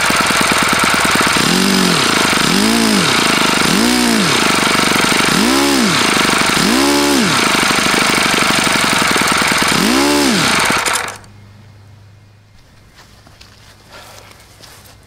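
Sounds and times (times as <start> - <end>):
model glow engine running at high speed: 0.0 - 11.3.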